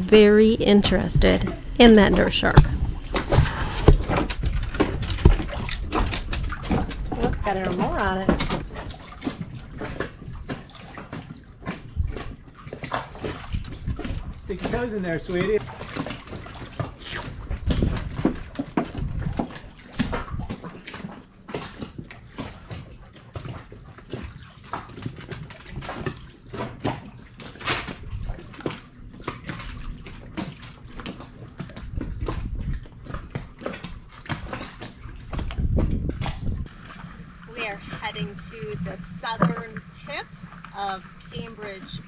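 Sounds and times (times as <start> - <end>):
low rumbles: 0.0 - 10.5, 31.8 - 42.0
small waves slapping against hull: 0.0 - 42.0.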